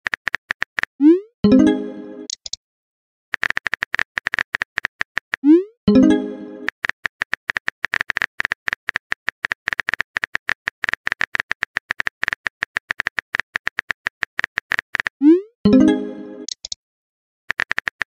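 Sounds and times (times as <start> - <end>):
phone keyboard typing clicks: 3.4 - 5.5, 6.6 - 15.2, 16.4 - 16.8, 17.5 - 18.0.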